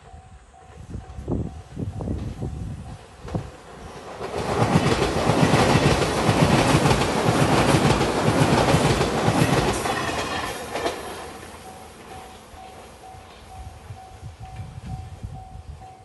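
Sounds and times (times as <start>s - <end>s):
train passing: 0.0s - 16.0s
wheels clicking over rail joints: 2.0s - 13.6s.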